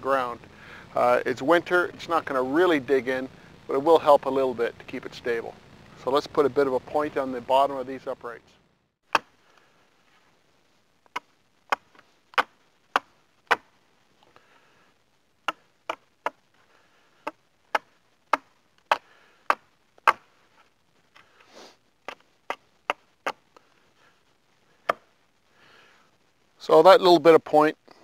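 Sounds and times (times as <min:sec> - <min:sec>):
axe chopping wood: 0:17.2 - 0:20.3.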